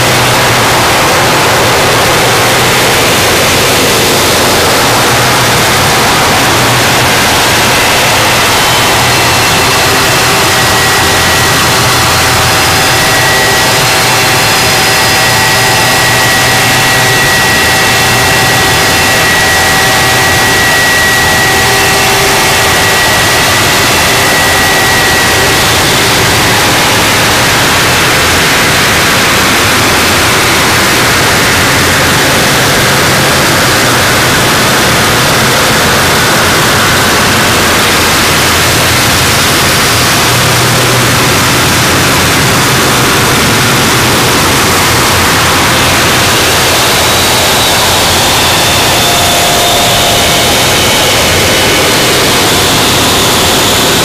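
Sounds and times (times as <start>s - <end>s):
distorted static noise music: 0.0s - 54.0s.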